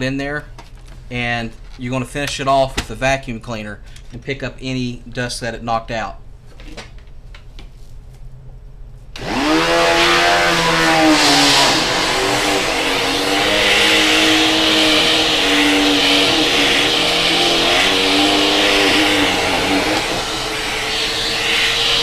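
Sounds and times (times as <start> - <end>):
vacuum cleaner motor whining: 9.2 - 22.0.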